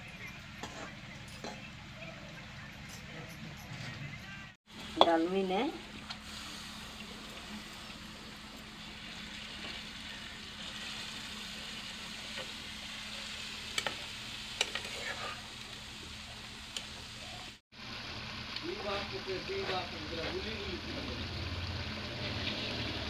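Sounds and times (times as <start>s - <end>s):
fish sizzling in hot oil: 4.7s - 19.6s, 20.4s - 23.0s.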